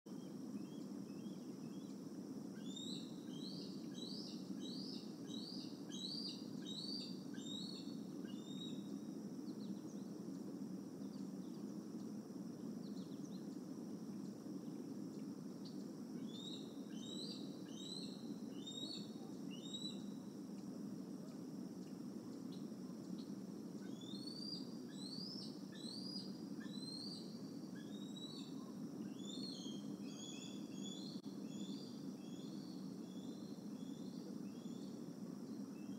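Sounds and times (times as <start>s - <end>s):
low background hum: 0.1s - 35.9s.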